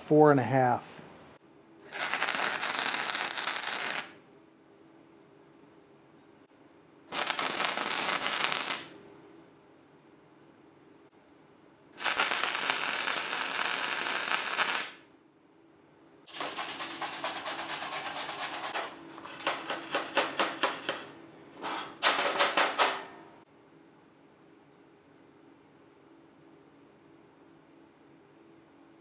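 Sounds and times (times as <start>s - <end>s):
welding arc crackling and hissing: 1.9s - 4.2s, 7.1s - 8.9s, 12.0s - 15.0s, 16.3s - 21.2s
wire brush scrubbing steel: 16.3s - 22.0s.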